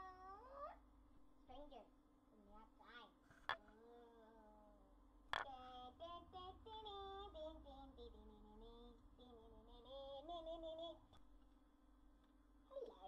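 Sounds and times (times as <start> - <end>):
person singing high and quietly: 0.0 - 0.8, 3.5 - 11.2.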